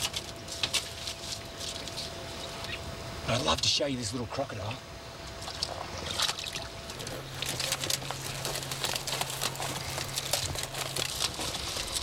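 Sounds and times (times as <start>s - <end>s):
dry sticks crackling and snapping: 0.0s - 2.8s, 6.2s - 12.0s.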